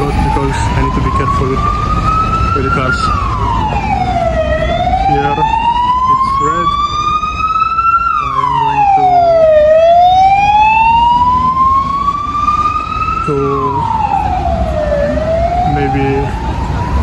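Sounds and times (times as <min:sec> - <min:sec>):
emergency siren wailing: 0:00.0 - 0:17.0.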